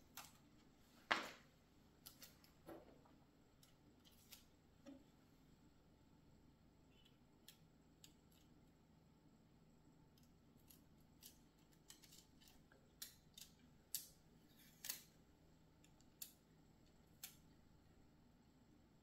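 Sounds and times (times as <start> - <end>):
faint clicks and snips: 0.0 - 0.7, 2.0 - 2.6, 3.5 - 5.1, 6.9 - 8.8, 10.1 - 17.8.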